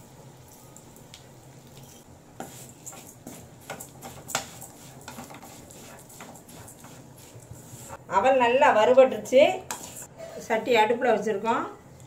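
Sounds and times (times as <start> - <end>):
metal spoon scraping a pan: 1.8 - 8.0, 9.7 - 10.5.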